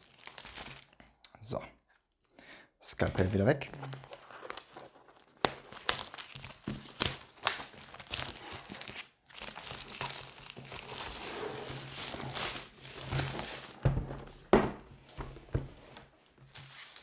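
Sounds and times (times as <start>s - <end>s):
plastic wrap crinkling and tearing: 0.0s - 1.2s, 3.2s - 13.8s.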